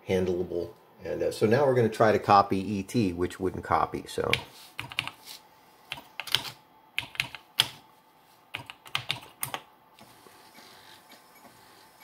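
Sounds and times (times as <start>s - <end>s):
computer keyboard typing: 4.2s - 5.2s, 5.9s - 7.8s, 8.5s - 9.7s.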